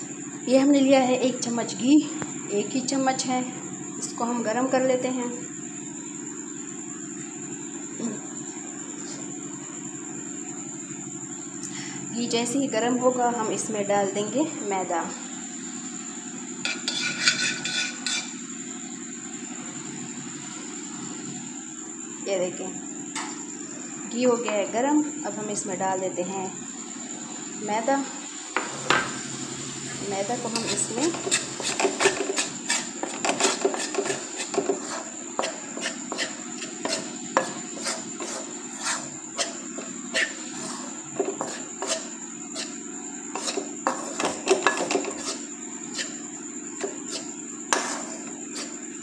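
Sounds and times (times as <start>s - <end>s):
steady low hum: 0.0s - 49.0s
spoon scraping a metal pan: 16.6s - 18.4s, 30.4s - 46.2s, 46.8s - 48.8s
pot and utensils clanking: 16.7s - 18.4s, 43.4s - 45.4s.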